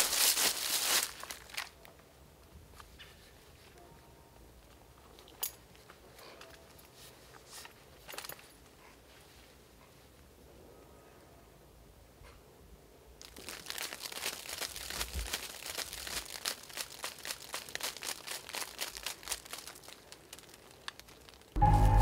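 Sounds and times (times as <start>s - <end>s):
urine stream on dry leaves: 0.0s - 1.7s, 13.2s - 21.6s.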